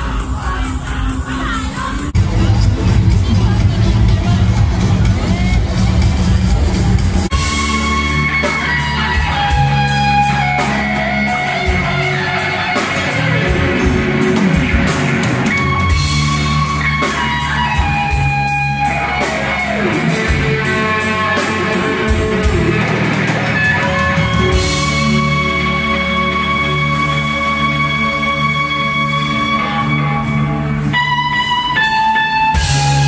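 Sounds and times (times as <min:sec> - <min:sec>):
live rock band playing: 0:00.0 - 0:33.0.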